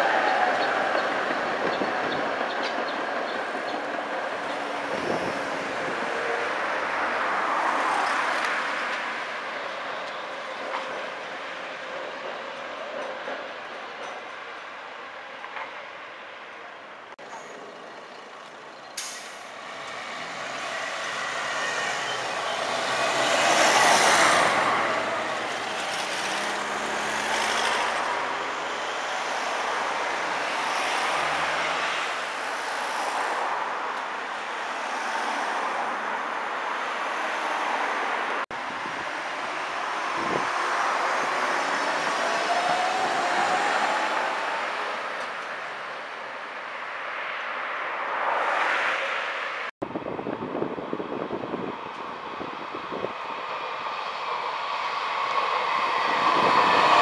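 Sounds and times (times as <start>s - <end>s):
trams running: 0.0s - 15.9s, 17.2s - 32.6s
street traffic: 0.0s - 57.0s.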